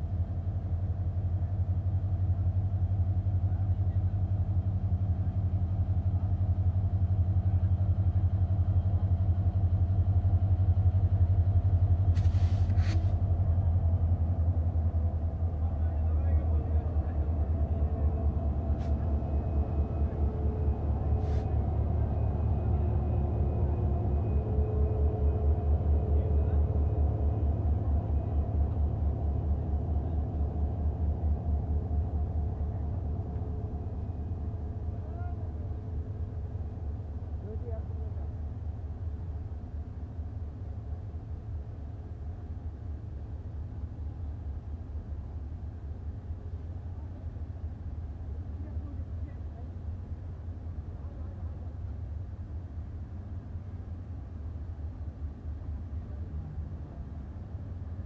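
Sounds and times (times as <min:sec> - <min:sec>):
diesel locomotive idling: 0:00.0 - 0:40.3
short hisses: 0:12.2 - 0:13.2.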